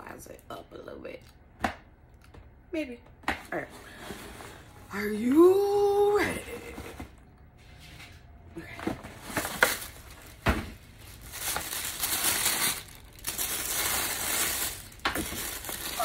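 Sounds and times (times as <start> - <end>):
packing wrapping crinkling: 9.2 - 16.0.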